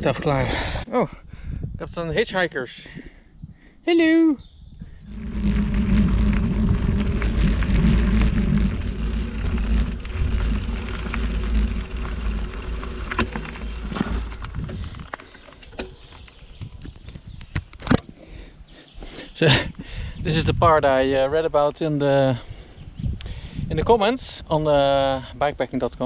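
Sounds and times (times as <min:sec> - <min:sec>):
wind rumbling on microphone: 0:00.0 - 0:02.3, 0:04.4 - 0:18.1, 0:19.6 - 0:21.6, 0:22.4 - 0:25.2
bicycle tyres rolling on dirt: 0:04.9 - 0:17.5
small clicks and rattles: 0:05.1 - 0:16.4.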